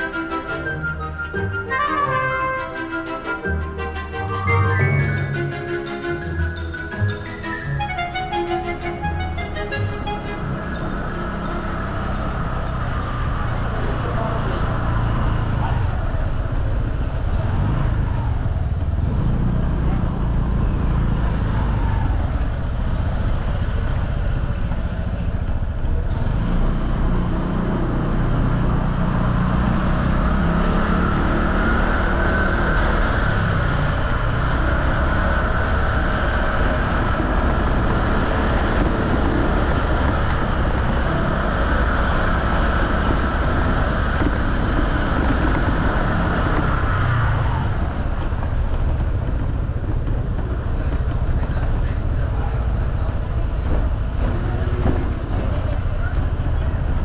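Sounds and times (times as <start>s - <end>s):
motorcycle engine and road noise: 4.9s - 57.0s.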